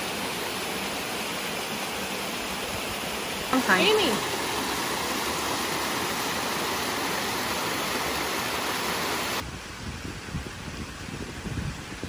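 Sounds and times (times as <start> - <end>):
waterfall splashing on rocks: 0.0 - 12.0.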